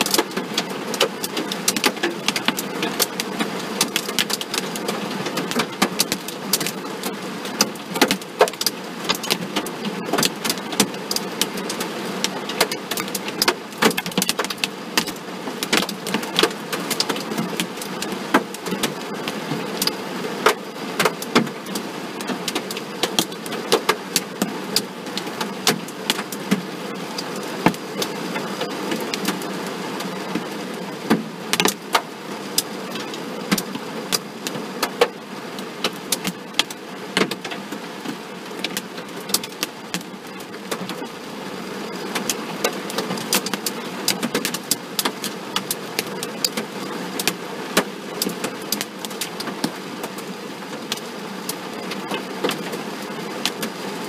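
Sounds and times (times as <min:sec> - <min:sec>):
hail hitting car metal: 0:00.0 - 0:26.7.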